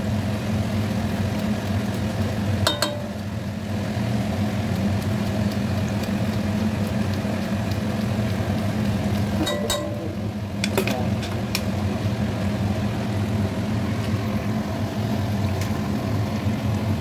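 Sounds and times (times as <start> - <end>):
low kitchen hum: 0.0 - 17.0
ringing metal clinks: 2.7 - 3.2, 9.4 - 10.1.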